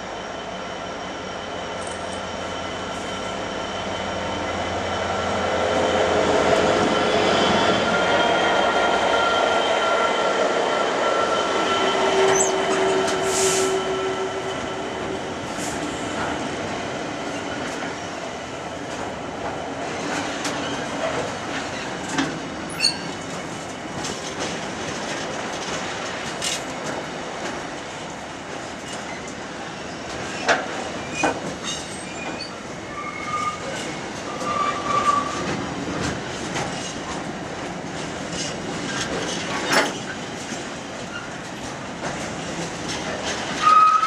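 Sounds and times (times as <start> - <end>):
diesel locomotive passing: 0.0 - 28.8
wheels rumbling on rail: 0.0 - 44.0
high wheel squeal: 11.2 - 14.4, 22.7 - 23.1, 31.9 - 35.4.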